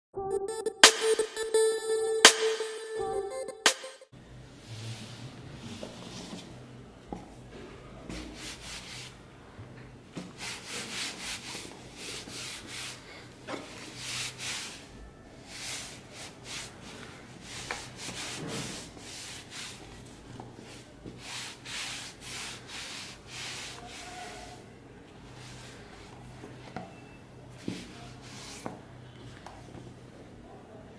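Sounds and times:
cloth brushing cardboard box: 8.2 - 9.1, 10.2 - 13.0, 13.7 - 14.9, 15.5 - 20.0, 20.6 - 24.6.

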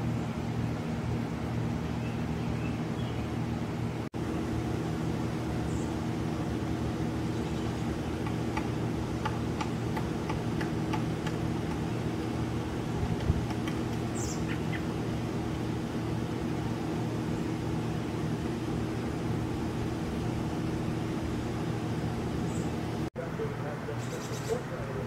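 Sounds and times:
low mechanical hum: 0.0 - 25.0
woodpecker calling: 7.2 - 12.1, 12.7 - 15.0, 23.9 - 24.8.

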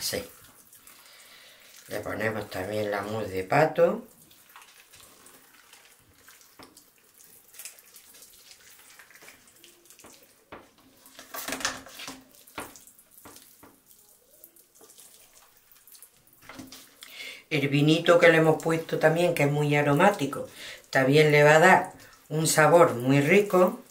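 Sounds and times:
wet squelching: 0.0 - 23.9
skin rubbing over meat: 0.2 - 17.0.

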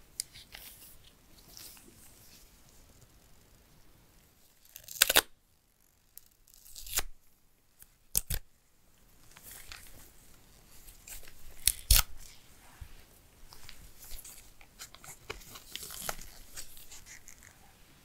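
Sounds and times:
soft rustling: 0.2 - 4.6, 9.1 - 11.6, 12.2 - 18.0.

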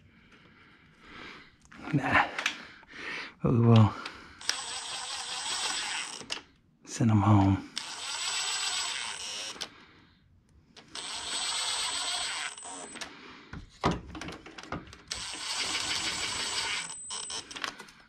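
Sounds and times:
impact wrench whining and hammering: 3.8 - 6.5, 7.7 - 9.7, 10.8 - 18.0.

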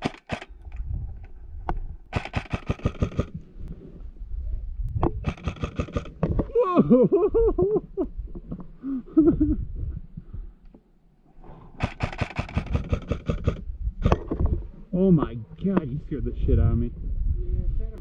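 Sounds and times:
airsoft rifle bursts: 0.0 - 0.5, 2.1 - 3.3, 11.8 - 13.6.

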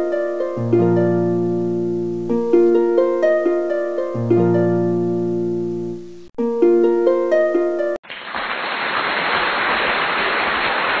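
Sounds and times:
plucked harp-like music: 0.0 - 8.0.

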